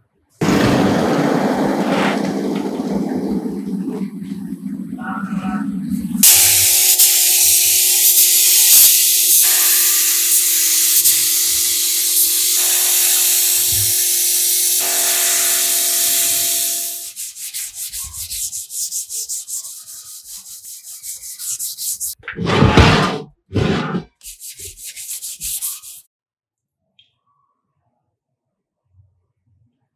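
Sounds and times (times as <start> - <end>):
abrasive sanding: 6.2 - 22.2, 23.6 - 26.0.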